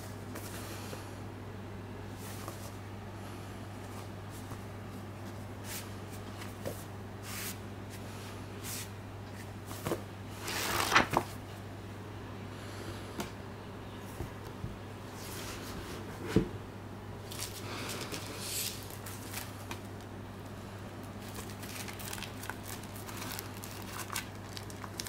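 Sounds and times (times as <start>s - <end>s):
steady low hum: 0.0s - 25.0s
book rustling and tapping: 9.7s - 10.0s.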